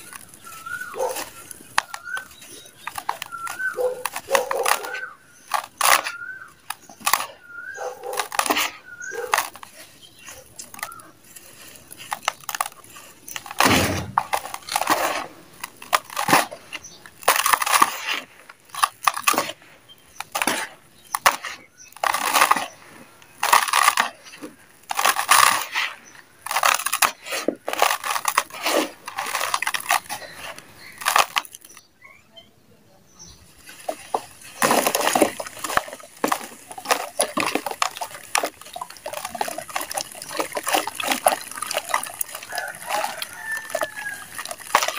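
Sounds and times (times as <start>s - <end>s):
dirt crumbling into plastic basin: 0.0s - 31.9s, 33.2s - 44.9s
dirt chunks falling into water: 8.1s - 19.6s, 20.2s - 31.8s, 33.6s - 44.9s.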